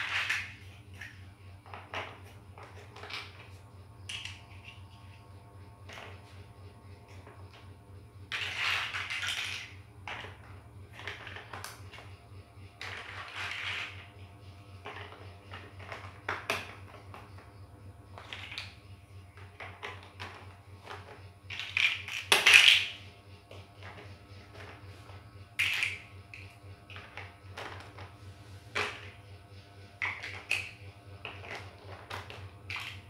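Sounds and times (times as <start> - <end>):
plastic toy blocks clicking: 4.1 - 4.6, 19.4 - 23.0, 25.6 - 28.0, 30.0 - 33.0.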